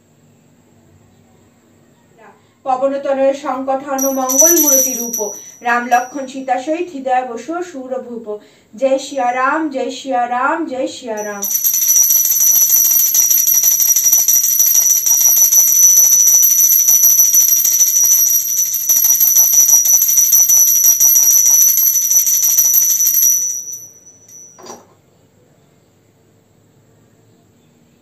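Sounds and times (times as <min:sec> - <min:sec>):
hand bell ringing rapidly: 0:04.0 - 0:06.3, 0:11.2 - 0:24.7.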